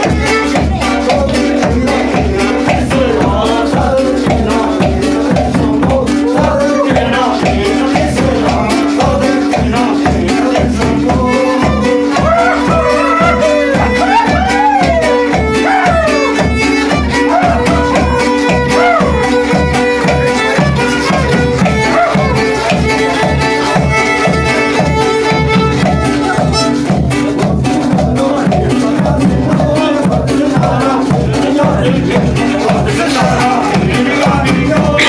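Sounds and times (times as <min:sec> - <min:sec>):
violin melody: 0:00.0 - 0:01.0, 0:11.3 - 0:27.0
steady drumbeat: 0:00.0 - 0:35.0.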